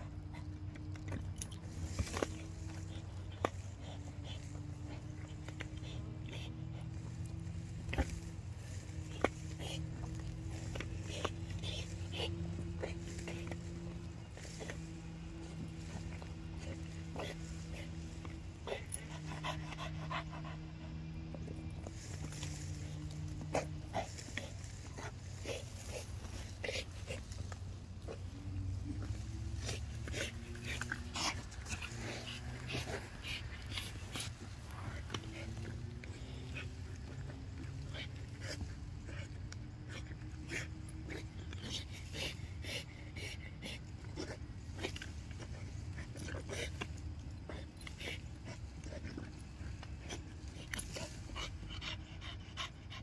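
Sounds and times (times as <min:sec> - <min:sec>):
dog panting: 0:00.0 - 0:53.0
steady low hum: 0:00.0 - 0:53.0.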